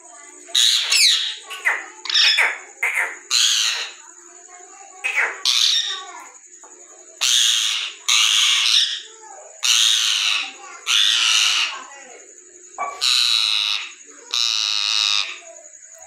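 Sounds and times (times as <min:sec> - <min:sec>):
parakeet chattering: 0:00.2 - 0:11.9, 0:12.7 - 0:15.7
parakeet squawking: 0:00.5 - 0:04.0, 0:05.0 - 0:06.1, 0:07.2 - 0:11.8, 0:12.8 - 0:15.4.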